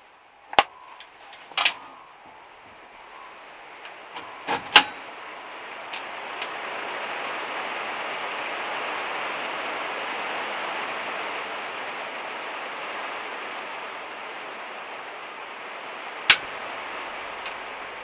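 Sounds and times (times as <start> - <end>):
heavy rain on metal roof: 0.0 - 18.0.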